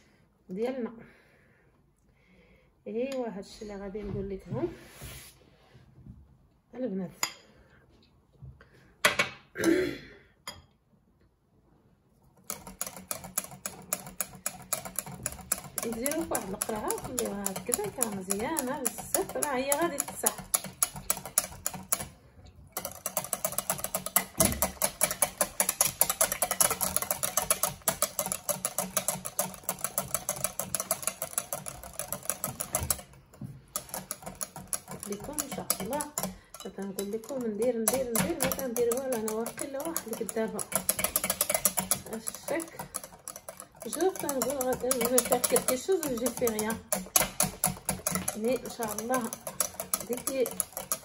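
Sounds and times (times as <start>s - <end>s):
whisk beating in glass bowl: 12.4s - 51.0s.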